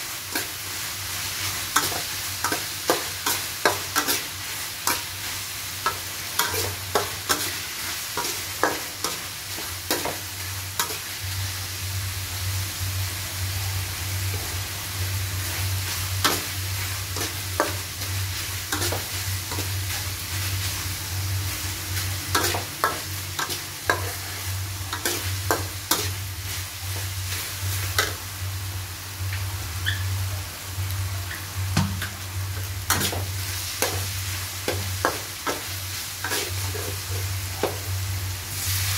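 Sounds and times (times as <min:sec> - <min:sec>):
food sizzling in oil: 0:00.0 - 0:38.9
metal spatula scraping wok: 0:16.2 - 0:20.9, 0:36.2 - 0:37.2.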